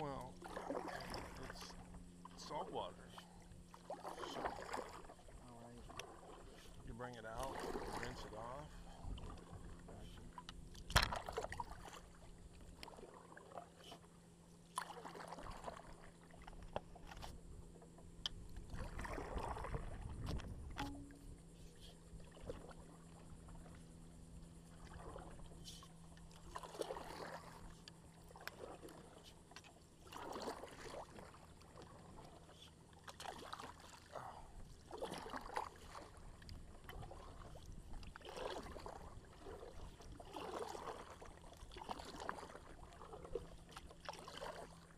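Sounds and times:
paddle strokes in water: 0.0s - 44.9s
water splashing and dripping: 26.2s - 44.7s.

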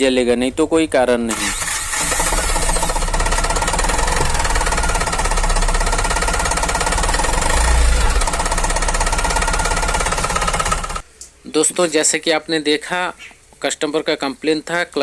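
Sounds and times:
diesel engine idling: 1.3s - 11.0s.

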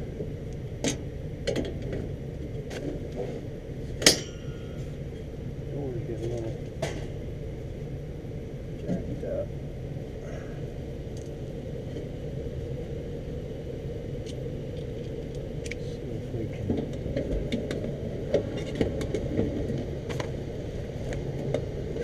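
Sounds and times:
low mechanical rumble with hum: 0.0s - 22.0s.

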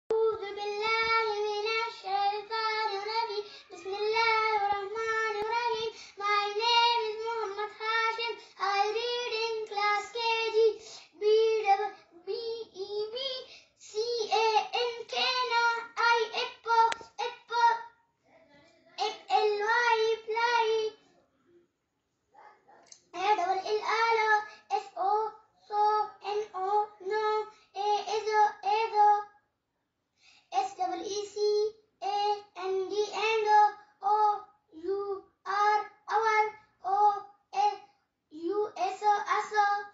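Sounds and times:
boy chanting in sing-song voice: 0.1s - 21.0s.

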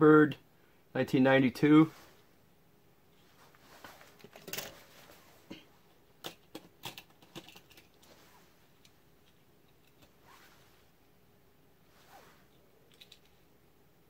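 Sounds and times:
toy cars clicking and rattling: 6.2s - 8.1s.

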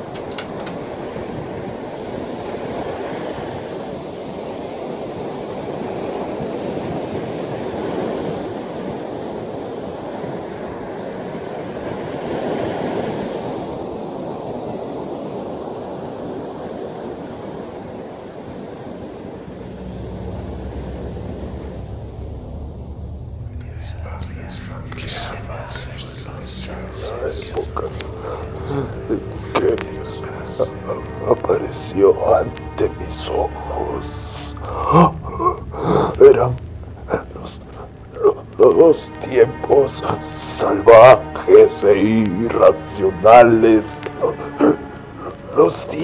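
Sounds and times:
ocean surf washing in: 0.0s - 46.0s
low steady hum: 18.8s - 46.0s.

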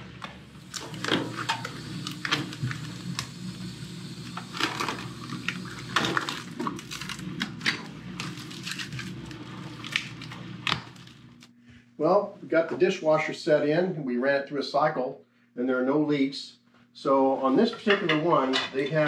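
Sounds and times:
plastic film crackling: 4.2s - 11.5s.

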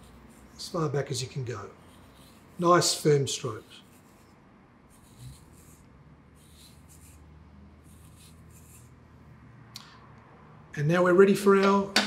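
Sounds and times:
comb scratching through hair: 0.0s - 9.1s.

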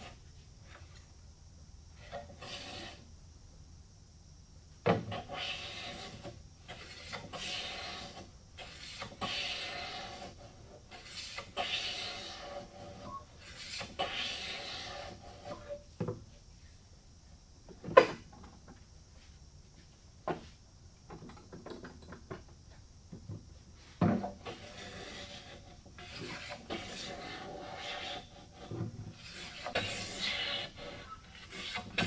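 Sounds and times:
hand plane rasping strokes: 2.0s - 3.0s, 5.1s - 15.8s, 24.4s - 32.0s.

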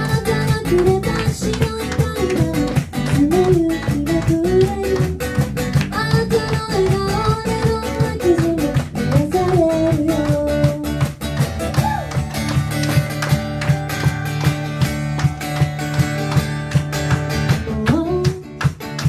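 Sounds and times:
woman singing: 0.0s - 11.2s, 17.5s - 19.0s
acoustic guitar strumming: 0.0s - 19.0s.

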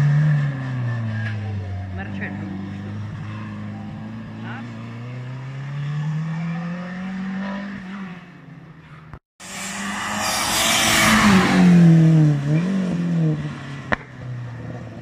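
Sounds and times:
road and tyre noise: 0.0s - 15.0s
race car engine revving: 9.4s - 15.0s.

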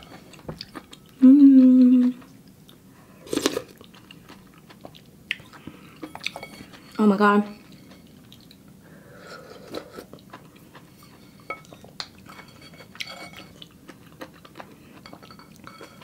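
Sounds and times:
chewing: 0.0s - 8.7s, 9.3s - 16.0s
utensil clinking against a bowl: 5.6s - 8.1s, 10.9s - 16.0s.

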